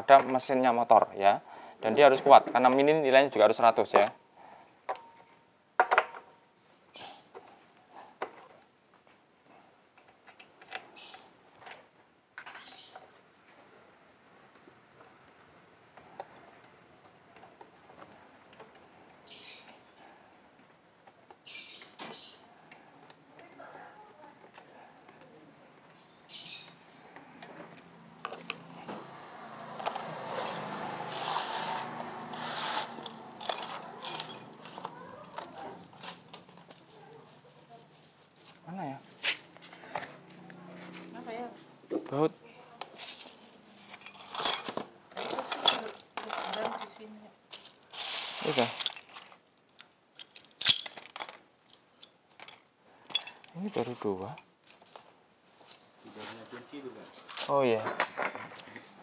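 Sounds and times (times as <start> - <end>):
scraping rustles: 27.6 - 41.7, 42.9 - 49.4
metal rasping and scraping: 30.0 - 34.9
metal tools clinking: 32.3 - 35.5, 43.4 - 46.9, 48.6 - 53.6, 57.7 - 58.8.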